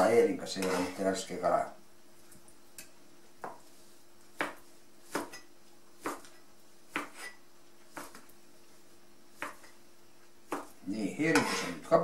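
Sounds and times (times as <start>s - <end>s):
knife chopping on plastic board: 4.4s - 5.4s, 6.0s - 8.2s, 9.4s - 9.7s, 10.5s - 10.8s.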